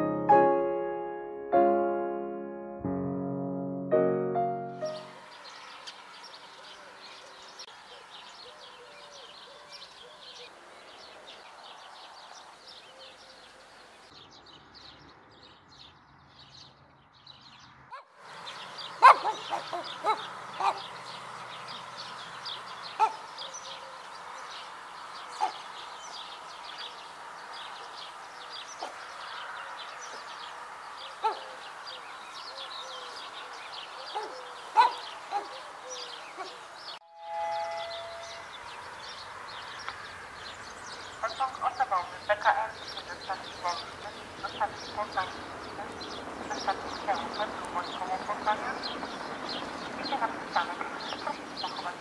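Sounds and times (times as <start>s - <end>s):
small birds chirping: 4.8s - 52.0s
dog barking: 19.0s - 20.9s, 23.0s - 23.3s, 28.8s - 29.1s, 31.1s - 31.6s, 34.0s - 35.7s.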